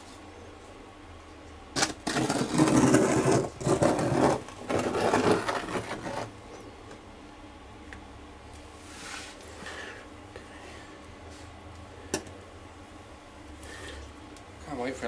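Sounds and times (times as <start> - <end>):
trowel scraping wet compound: 1.8 - 6.3.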